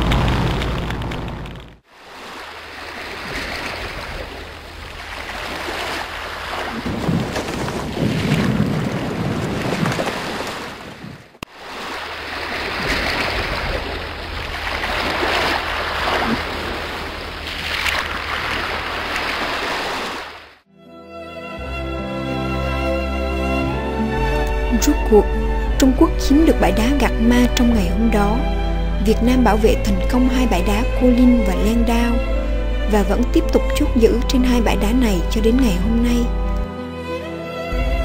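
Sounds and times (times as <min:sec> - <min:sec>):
sea waves washing: 0:00.0 - 0:20.6, 0:23.6 - 0:37.9
wind: 0:00.0 - 0:20.7.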